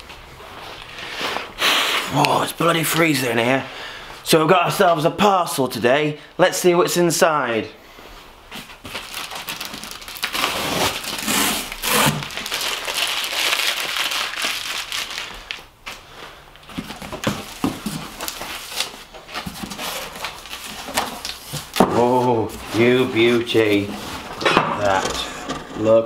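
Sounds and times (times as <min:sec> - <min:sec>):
tape being crumpled: 0:08.6 - 0:16.0, 0:16.6 - 0:21.8
tape ripping off cardboard: 0:08.8 - 0:15.3.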